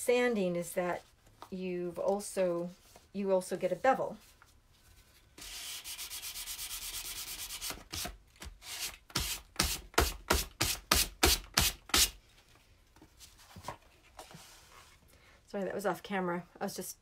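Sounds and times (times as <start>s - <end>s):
sanding block rubbing on board: 5.4s - 7.8s.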